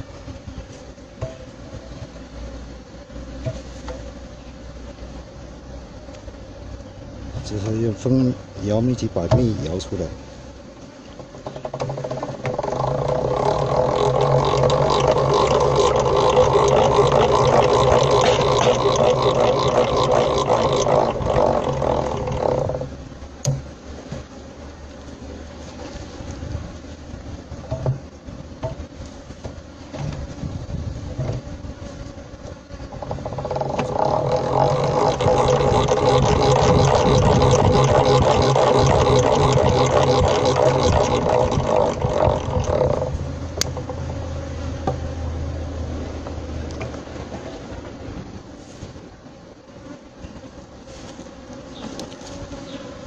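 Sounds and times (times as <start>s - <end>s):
honey extractor whirring: 11.6s - 23.0s, 32.8s - 47.4s.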